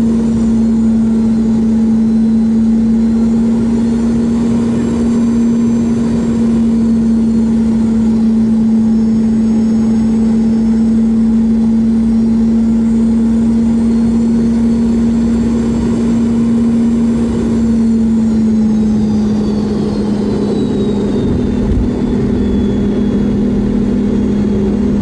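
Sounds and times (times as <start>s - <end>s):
jet engine hum and whine: 0.0s - 25.0s
low rumble: 17.3s - 25.0s.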